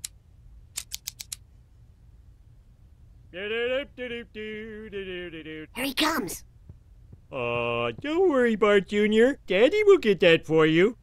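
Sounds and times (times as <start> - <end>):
high voice holding notes: 5.8 - 6.4.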